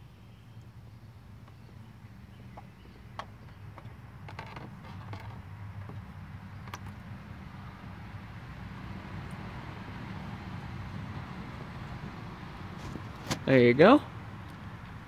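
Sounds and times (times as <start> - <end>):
oil filter clicks and scrapes: 3.2 - 7.0.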